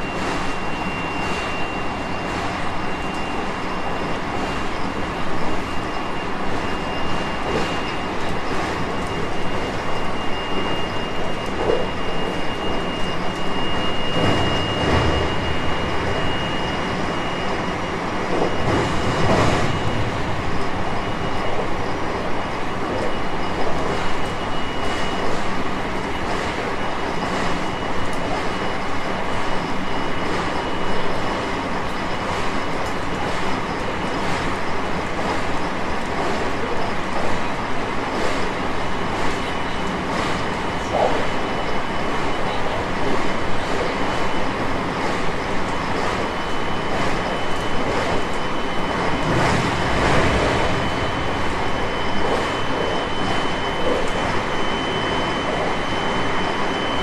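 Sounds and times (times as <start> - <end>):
steady high electric tone: 0.0 - 57.0
train wheels rolling on rails: 0.0 - 57.0
deep heavy rumbles: 49.0 - 52.3.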